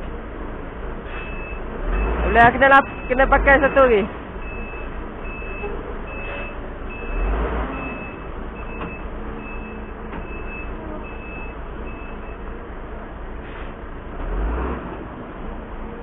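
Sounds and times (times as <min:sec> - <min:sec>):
engine running low: 0:00.0 - 0:16.0
reversing alarm beeping: 0:01.1 - 0:12.5.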